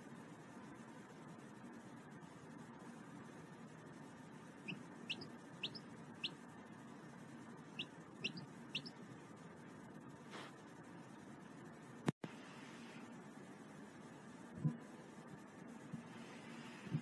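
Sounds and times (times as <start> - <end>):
chick peeping: 4.7 - 6.4, 7.8 - 8.9.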